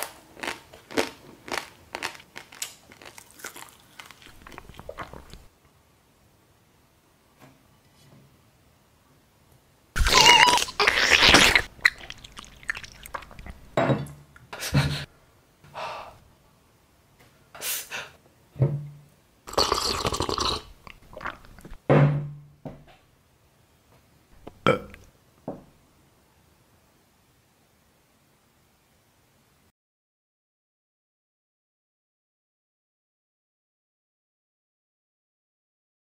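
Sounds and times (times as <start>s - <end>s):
person chewing: 0.4s - 5.5s, 10.0s - 13.8s, 19.5s - 21.8s
person slurping: 3.0s - 5.5s, 10.0s - 13.8s, 19.5s - 21.8s
small burps: 10.0s - 13.6s, 19.5s - 21.8s, 24.4s - 25.1s.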